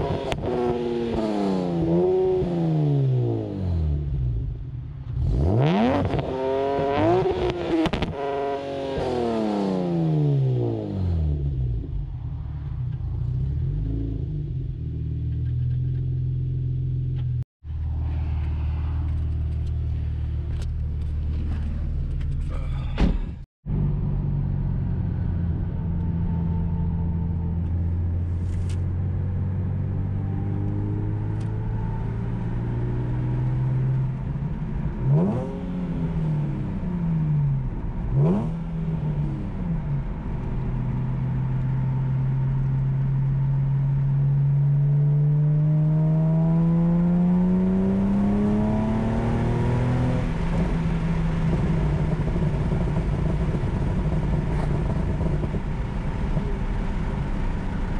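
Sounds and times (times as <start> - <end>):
car exhaust droning: 16.2 - 57.9.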